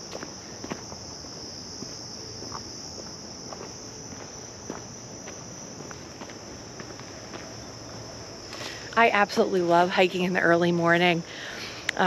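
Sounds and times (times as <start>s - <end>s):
light footsteps on trail: 0.0s - 8.9s
crickets trilling: 0.0s - 12.0s.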